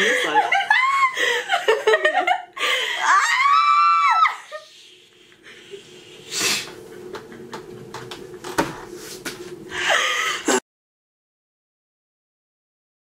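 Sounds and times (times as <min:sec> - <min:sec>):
woman laughing: 0:00.0 - 0:03.3
faint steady hum: 0:00.0 - 0:10.6
breathy rush of air: 0:04.5 - 0:07.0, 0:08.8 - 0:10.6.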